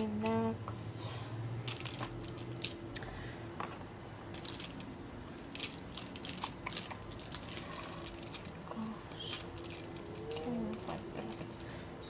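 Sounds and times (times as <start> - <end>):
makeup items clicking and clattering: 1.6 - 2.8, 3.6 - 11.7.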